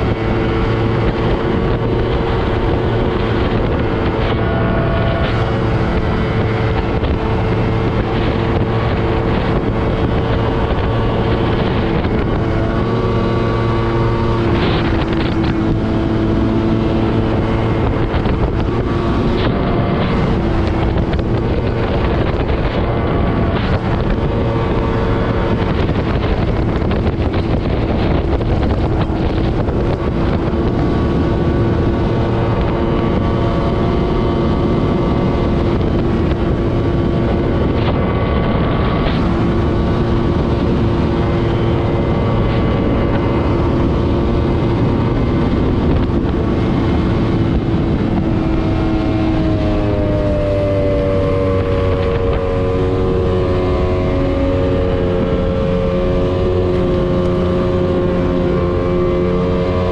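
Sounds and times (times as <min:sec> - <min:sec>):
outboard motor droning: 0:00.0 - 0:59.9
wind buffeting microphone: 0:00.0 - 0:59.9.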